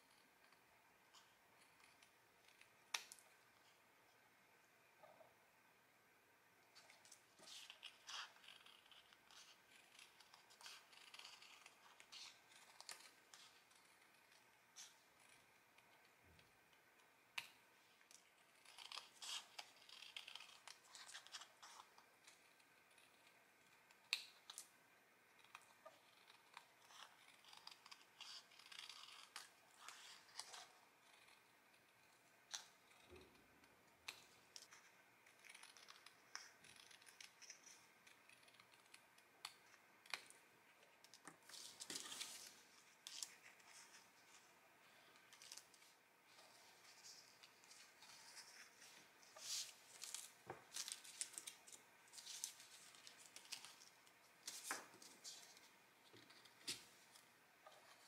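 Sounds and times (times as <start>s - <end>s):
paper rustling: 45.3s - 57.1s.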